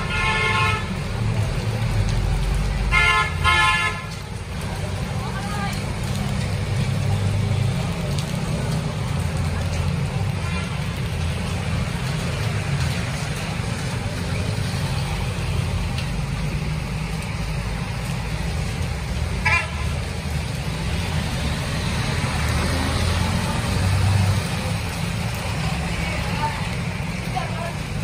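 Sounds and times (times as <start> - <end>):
low rumble of engines: 0.0 - 28.0
rain hissing on wet road: 0.0 - 28.0.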